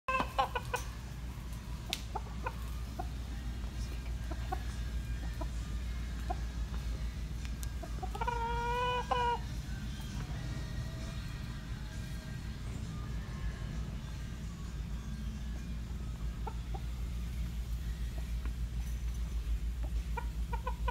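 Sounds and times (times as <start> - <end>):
rooster clucking: 0.1 - 1.1, 1.9 - 6.6, 7.8 - 9.6, 19.8 - 20.9
steady low rumble: 0.5 - 20.9.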